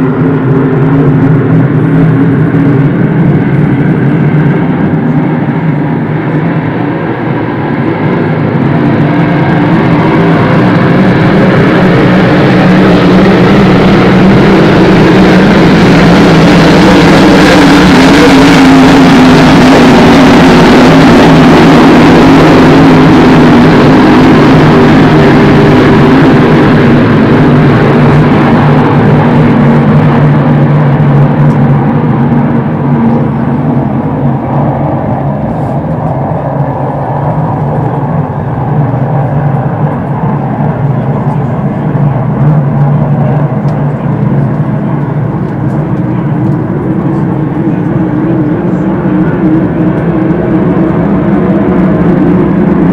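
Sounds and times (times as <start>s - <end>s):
racing boat engines droning: 0.0s - 52.9s.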